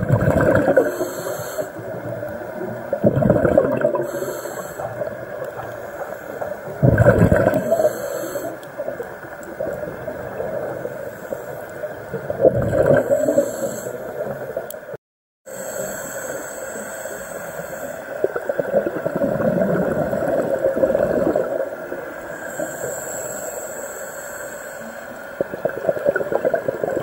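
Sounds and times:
exhaled bubbles rushing: 0.0 - 1.1, 1.7 - 8.0, 8.8 - 11.1, 11.9 - 14.7, 18.2 - 22.2, 25.4 - 27.0
watery background: 0.0 - 27.0
regulator inhale hiss: 0.7 - 2.4, 3.9 - 6.8, 7.6 - 8.9, 10.8 - 12.1, 13.0 - 14.6, 15.5 - 18.4, 22.1 - 25.5.

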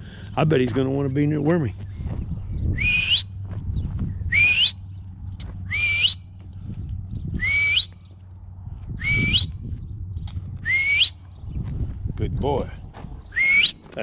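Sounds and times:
man whistling rising notes: 2.7 - 3.4, 4.3 - 4.8, 5.7 - 6.3, 7.3 - 8.0, 8.9 - 9.6, 10.6 - 11.2, 13.3 - 13.8.

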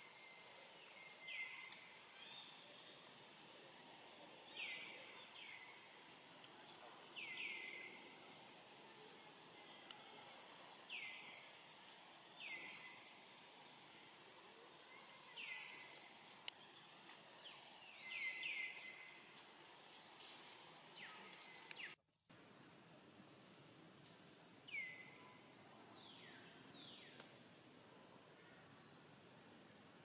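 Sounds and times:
faint outdoor background: 0.0 - 30.0
bird chirping: 14.8 - 19.5.

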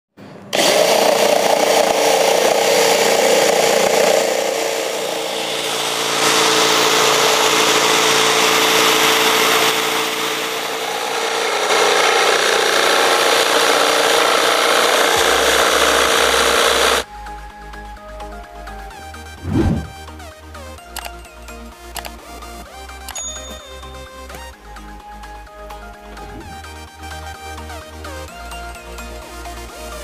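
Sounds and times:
drill motor whine: 0.5 - 17.1
jigsaw blade rasping: 0.6 - 17.0.

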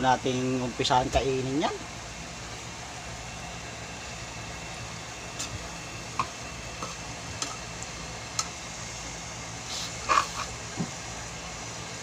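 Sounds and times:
low hum and hiss: 0.0 - 12.0.

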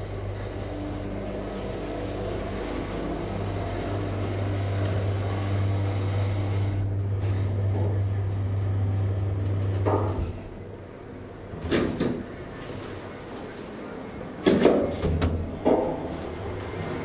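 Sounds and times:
elevator pump motor humming: 0.0 - 17.0
elevator door clunk: 14.4 - 17.0.

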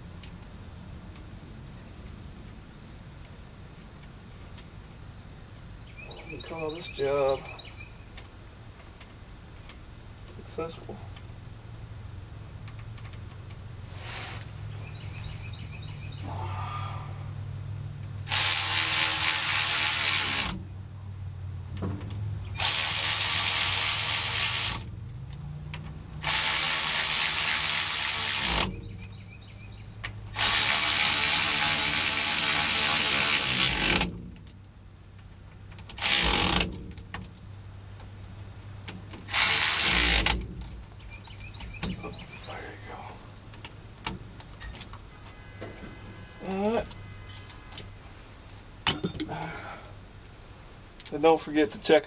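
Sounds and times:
power tool bursts: 18.3 - 20.6, 22.6 - 24.9, 26.2 - 28.8, 30.3 - 34.3, 36.0 - 36.8, 39.3 - 40.7.

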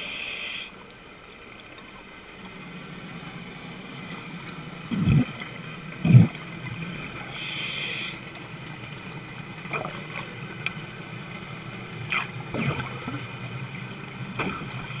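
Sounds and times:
regulator breathing hiss: 0.0 - 0.8, 3.6 - 4.9, 7.3 - 8.3, 13.1 - 15.0
low underwater hum: 0.0 - 15.0
bubble gurgles: 4.9 - 5.4, 6.0 - 6.4, 12.1 - 13.2.

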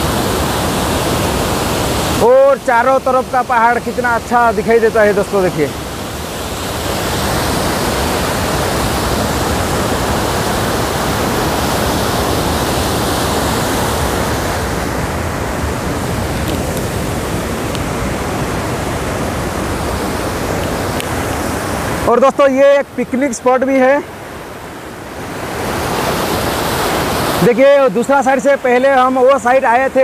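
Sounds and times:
water rushing over rocks: 0.0 - 30.0.

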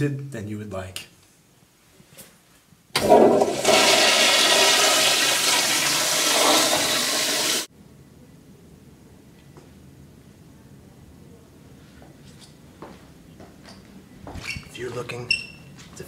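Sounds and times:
toilet flushing: 3.0 - 7.7.

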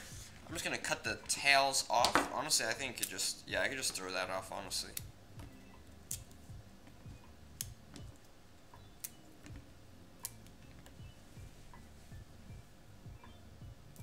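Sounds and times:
low steady hum: 0.0 - 14.0
pepper stems snapping: 6.1 - 6.4, 7.6 - 8.1.

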